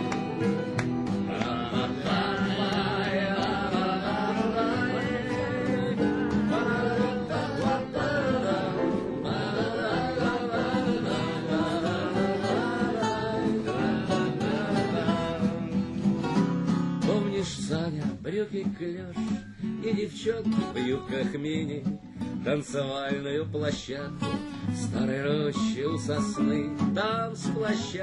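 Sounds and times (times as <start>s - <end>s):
acoustic guitar: 0.0s - 28.0s
person singing: 1.3s - 16.0s, 17.0s - 21.8s.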